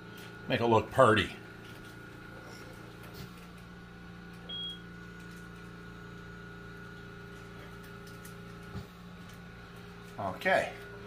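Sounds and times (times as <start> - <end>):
appliance electrical hum: 0.0 - 11.0
high beep: 4.5 - 4.8.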